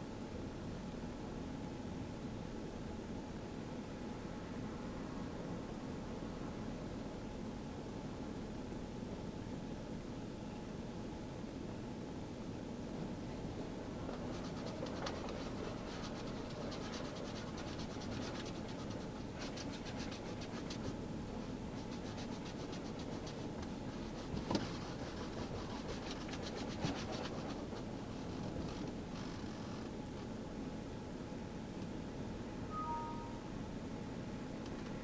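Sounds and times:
steady background noise: 0.0 - 35.0.

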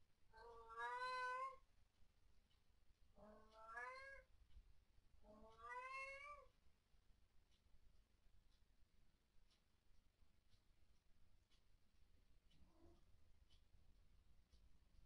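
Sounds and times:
cat meowing: 0.4 - 1.6, 3.2 - 4.3, 5.3 - 6.5.

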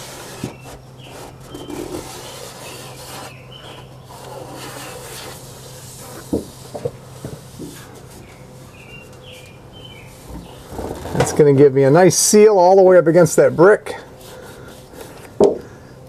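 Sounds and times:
finger scraping metal edge: 0.0 - 6.9.

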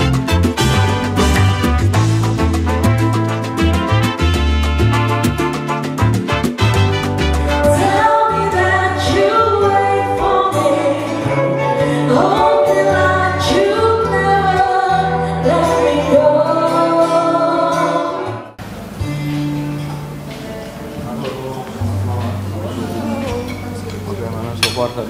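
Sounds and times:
live band playing: 0.0 - 24.6
person singing: 7.5 - 18.5.

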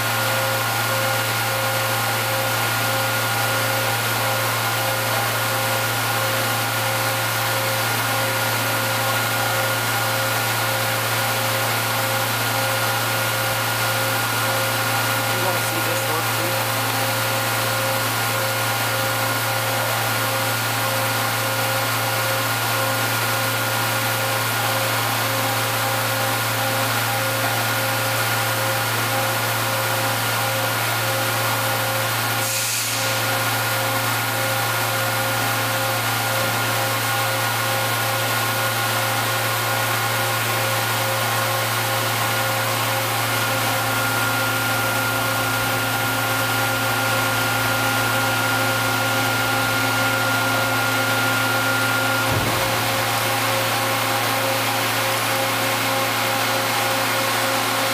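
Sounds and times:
machine hum and whir: 0.0 - 57.9
brief hiss: 32.4 - 33.2.

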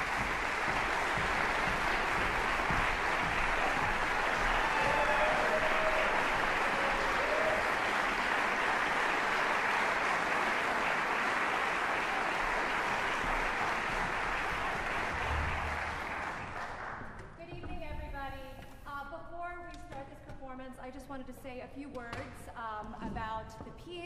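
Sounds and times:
audience applauding: 0.0 - 17.2.

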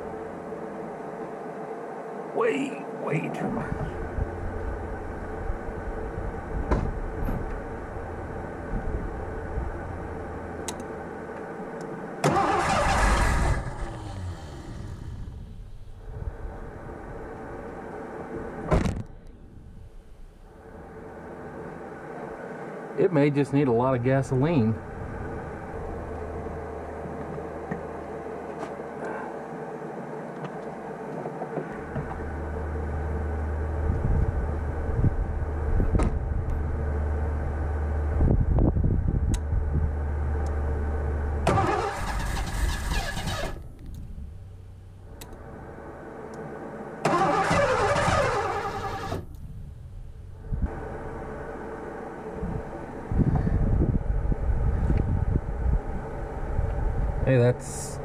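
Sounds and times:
car engine running: 3.2 - 23.0, 23.6 - 29.0, 30.6 - 53.2.

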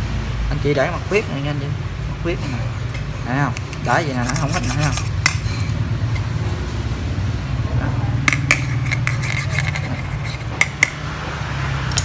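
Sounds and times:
screwdriver tapping metal: 2.9 - 6.3, 8.2 - 11.0.

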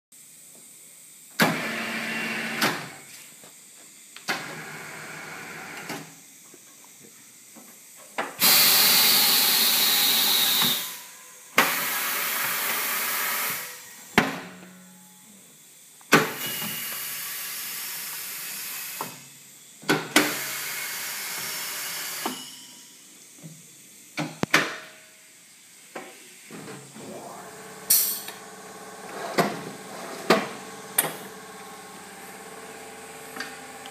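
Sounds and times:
compressed air hissing: 8.4 - 13.8.

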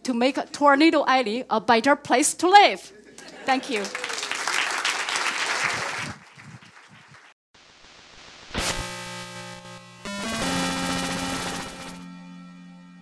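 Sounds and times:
audience applauding: 3.2 - 7.4
synthesizer chords: 8.6 - 13.0.

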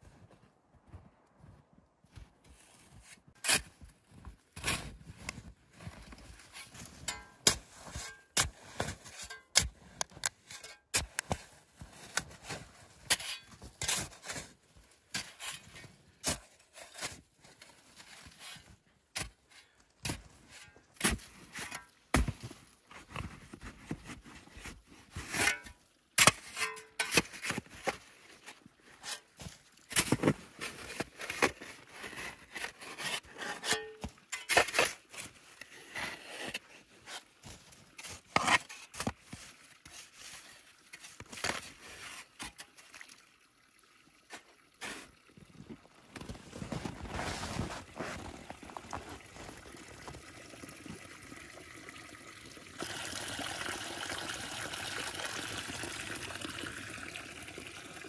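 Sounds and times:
shovel scraping into snow: 46.5 - 48.8.

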